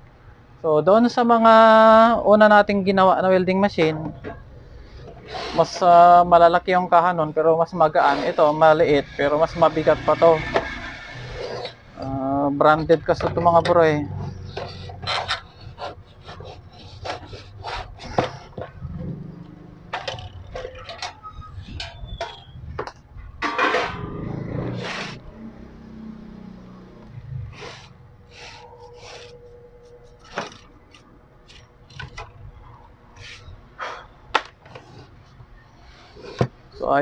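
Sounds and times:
scraping of casing: 14.2s - 18.9s
clicks and knocks of metal casing: 19.9s - 24.0s.

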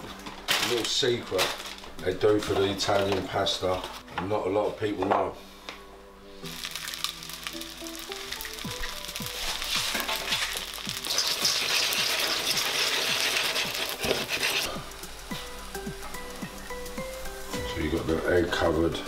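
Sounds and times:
background music with steady beat: 0.0s - 19.0s
spaghetti sizzling in a saucepan: 6.3s - 18.9s
egg being stirred through pasta: 9.3s - 14.8s.

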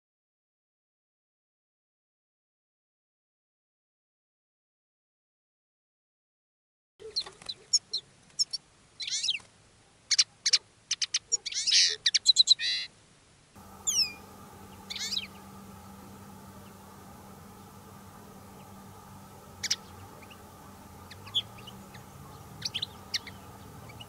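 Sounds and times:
birds twittering and trilling: 7.0s - 9.5s, 10.1s - 12.9s, 13.6s - 24.0s
falling whistled bird notes: 13.8s - 15.5s.

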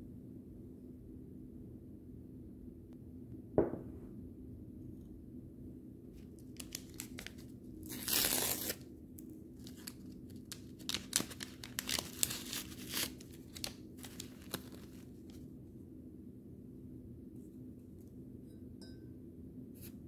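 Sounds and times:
paper wrapper crinkling: 6.4s - 15.4s
paper wrapper tearing: 6.5s - 8.8s, 9.6s - 15.4s.

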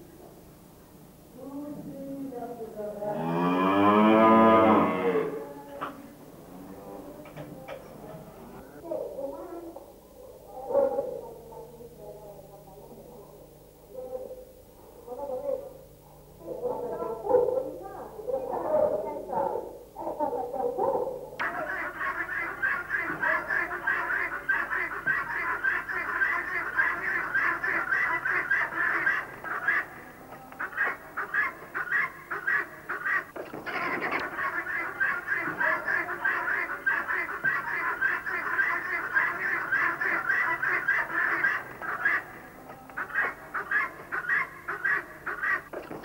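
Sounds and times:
fowl honking: 21.4s - 45.8s.

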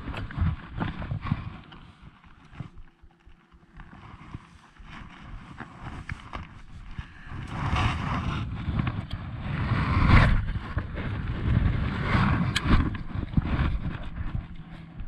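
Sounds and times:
wind buffeting microphone: 0.0s - 3.2s, 3.8s - 15.0s.

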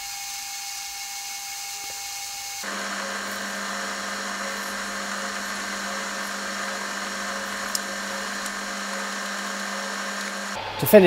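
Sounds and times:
lathe humming: 2.4s - 10.6s.

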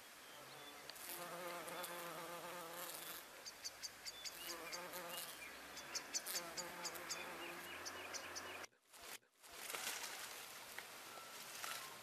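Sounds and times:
bumblebee buzzing: 0.8s - 3.3s, 4.3s - 8.7s.

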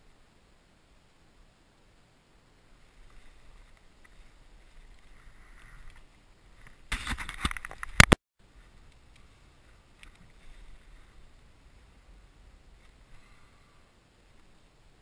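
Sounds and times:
kayak handling noise: 3.0s - 11.2s.

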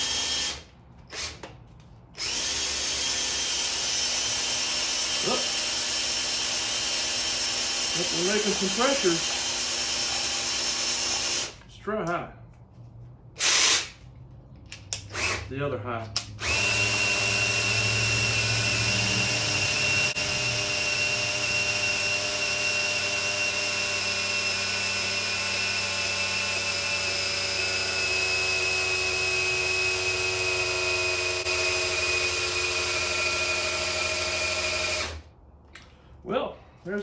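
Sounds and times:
cordless drill high whine: 0.0s - 1.4s, 2.2s - 11.5s, 16.4s - 35.2s.

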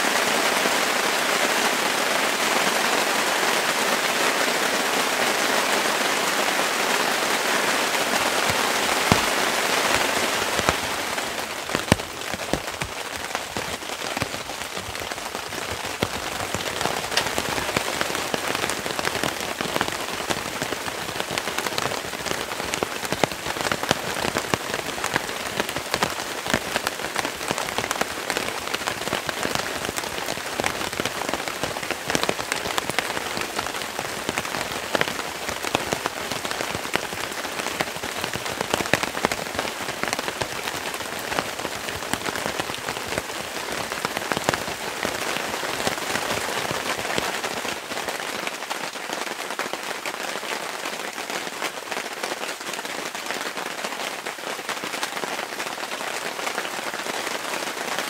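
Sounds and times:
steady rain hissing: 0.0s - 58.0s
sharp raindrop hits: 6.2s - 48.2s.

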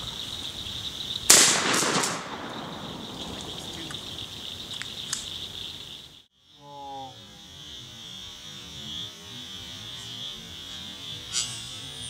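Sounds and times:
shotgun blast echoing: 1.3s - 4.4s.

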